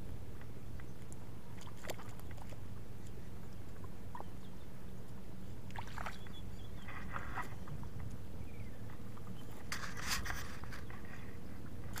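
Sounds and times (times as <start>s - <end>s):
splashing in shallow water: 0.4s - 4.4s, 5.6s - 8.2s.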